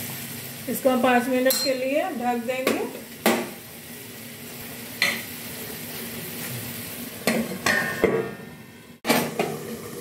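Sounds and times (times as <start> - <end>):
curry simmering and sizzling: 0.0 - 10.0
metal clinking against pan: 1.5 - 1.8.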